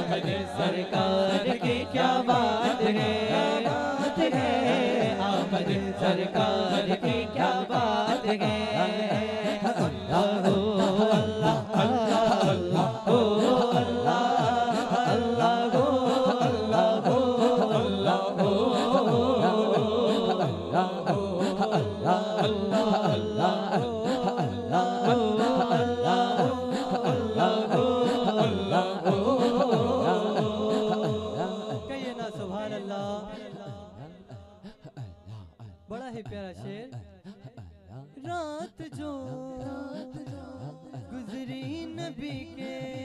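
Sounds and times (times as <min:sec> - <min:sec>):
men chanting rhythmically: 0:00.0 - 0:35.0.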